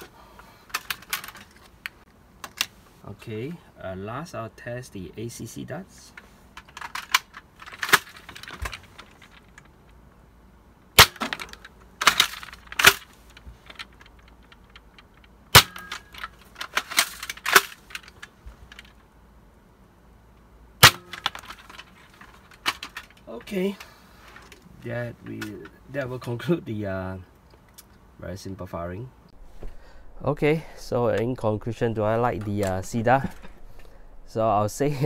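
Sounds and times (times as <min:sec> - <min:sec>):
plastic clacks of handling: 0:00.0 - 0:02.8, 0:06.1 - 0:10.0, 0:11.1 - 0:19.0, 0:20.9 - 0:25.8
foam dart blaster firing cracks: 0:11.0 - 0:11.4, 0:15.5 - 0:16.0, 0:20.8 - 0:21.3.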